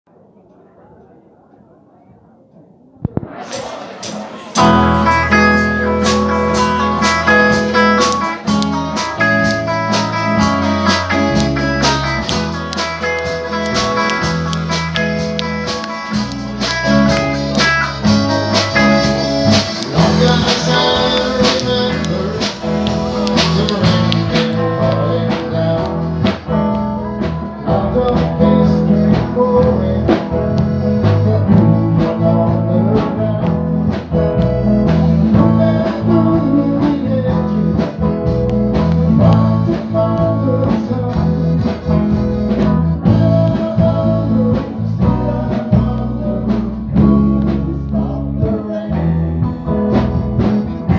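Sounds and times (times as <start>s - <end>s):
live band playing: 3.2s - 50.9s
man singing: 3.5s - 50.9s
accordion: 4.2s - 26.8s.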